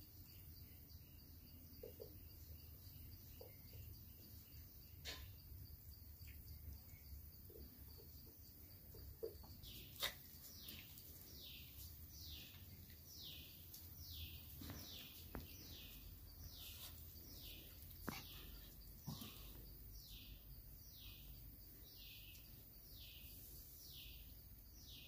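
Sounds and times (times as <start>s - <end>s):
bird chirping: 0.0s - 25.0s.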